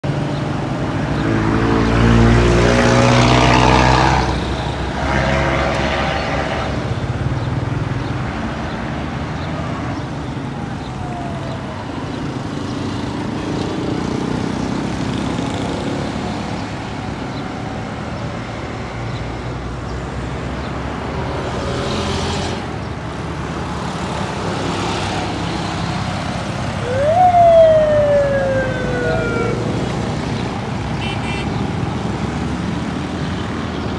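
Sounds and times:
motorcycles passing: 0.1 - 9.5, 10.3 - 33.9.

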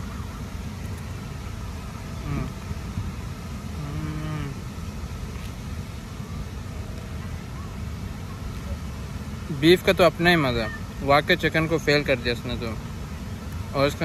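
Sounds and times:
man humming mmm while eating: 2.2 - 2.6, 3.7 - 4.7.

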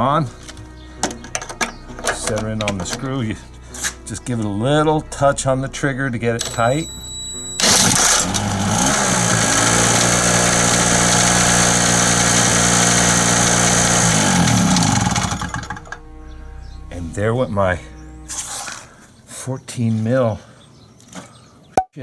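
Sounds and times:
cordless drill spinning: 6.4 - 16.0
small generator engine running: 6.4 - 16.0.

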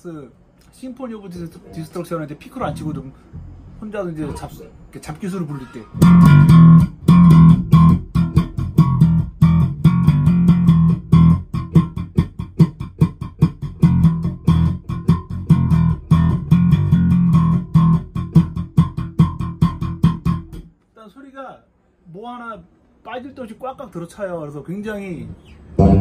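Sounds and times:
electric bass riff: 6.0 - 20.7, 25.7 - 26.0.

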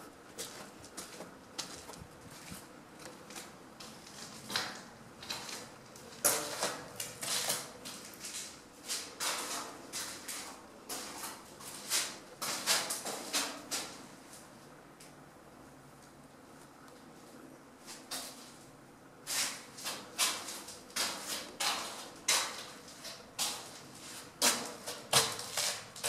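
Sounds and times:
footsteps on concrete: 0.3 - 5.4.

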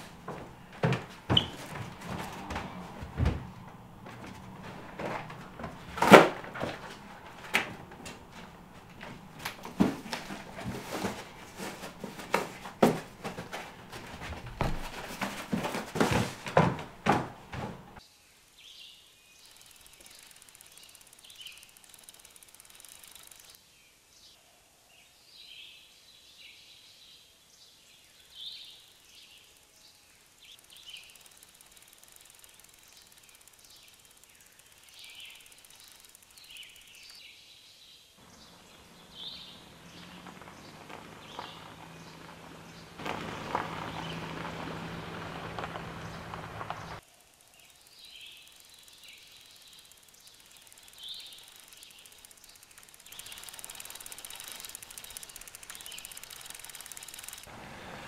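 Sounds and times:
small birds chirping: 0.0 - 6.0, 17.9 - 57.5
knocks and rustles of cardboard: 0.0 - 18.0.

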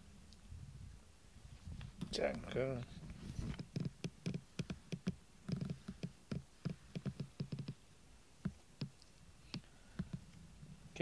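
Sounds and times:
hand patting a fleece blanket: 3.1 - 7.8.

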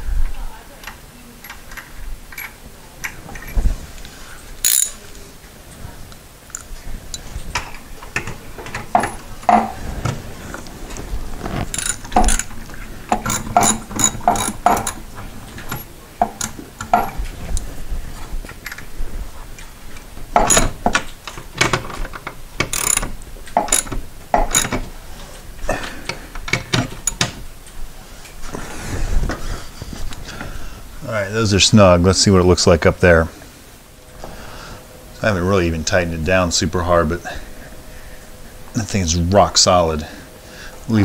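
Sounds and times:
ratchet wrench clicking: 4.6 - 5.0, 11.7 - 12.5, 13.1 - 15.0, 22.7 - 24.8.

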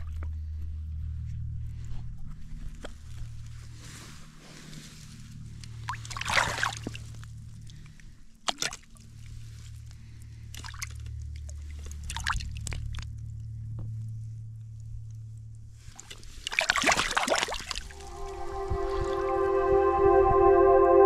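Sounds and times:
low steady hum: 0.0 - 21.0
water sloshing and splashing: 5.8 - 7.2, 10.5 - 13.0, 15.9 - 18.0.

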